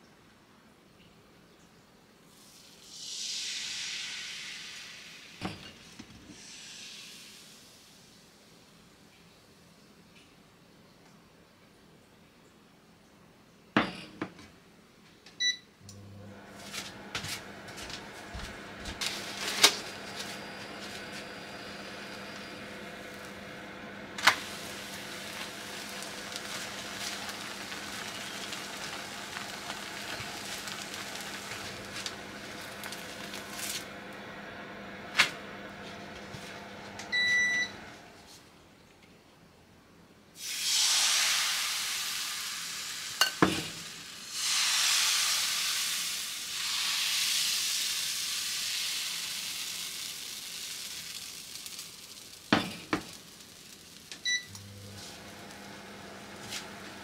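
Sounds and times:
batter sizzling in a frying pan: 2.3s - 8.3s, 24.2s - 34.0s, 40.4s - 57.0s.

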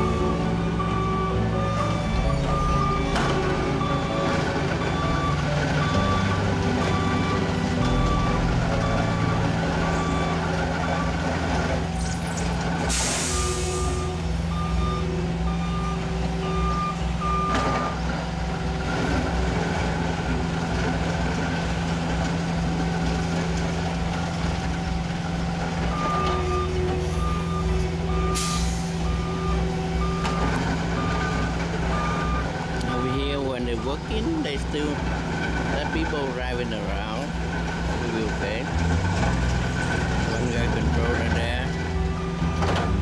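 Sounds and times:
backup alarm beeping: 0.0s - 11.3s, 13.2s - 18.0s, 25.9s - 35.0s, 40.2s - 43.0s
machinery engine running: 0.0s - 43.0s.

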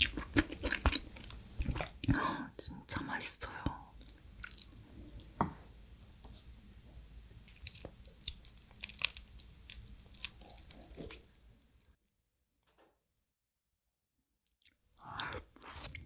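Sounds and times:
crab shell cracking by hand: 7.5s - 11.2s.

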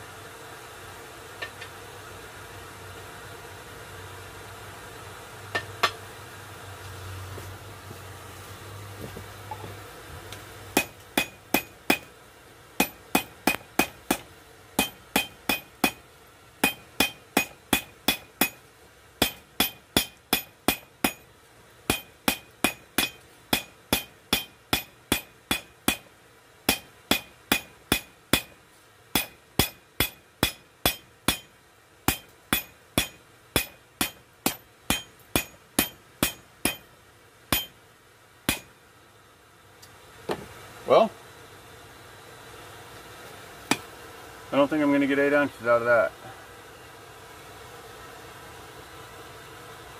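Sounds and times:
hammer blows on anvil: 14.8s - 16.0s, 16.6s - 18.6s, 19.2s - 21.2s, 21.9s - 26.1s, 26.7s - 28.6s, 29.2s - 31.5s, 32.1s - 36.9s, 37.5s - 37.8s, 38.5s - 38.7s.

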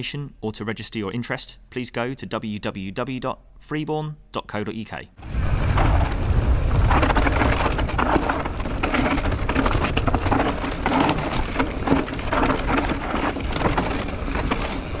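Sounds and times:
bike tyres crunching over stones: 5.2s - 15.0s
wind rumbling on microphone: 5.2s - 15.0s.

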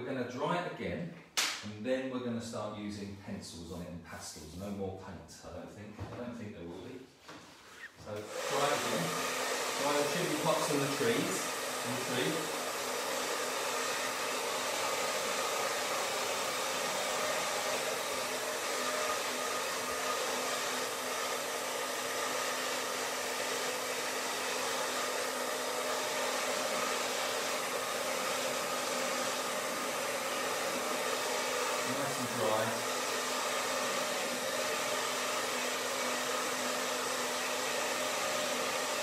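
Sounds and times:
hair dryer running: 8.2s - 39.0s.

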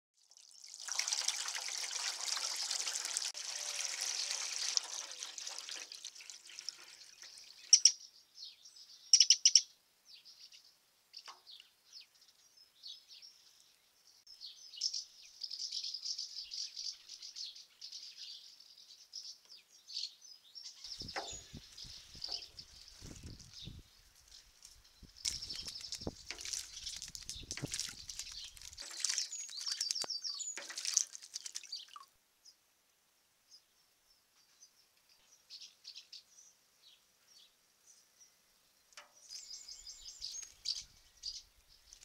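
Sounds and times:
water pouring into basin: 0.2s - 7.8s, 25.2s - 32.1s
small birds chirping: 3.5s - 32.7s, 33.4s - 42.0s.

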